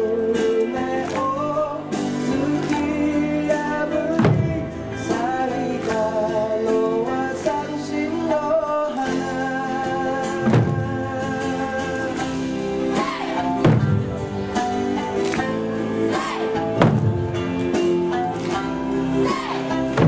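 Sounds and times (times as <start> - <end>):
person singing: 0.0 - 13.6
heavy drum strike: 4.2 - 4.8, 10.4 - 11.0, 13.0 - 14.2, 16.2 - 17.3
plucked strings: 10.2 - 20.0.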